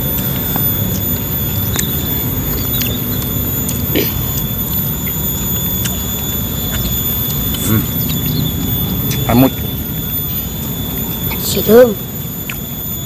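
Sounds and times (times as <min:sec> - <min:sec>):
people chewing: 0:00.0 - 0:12.8
faint high whine: 0:00.0 - 0:13.0.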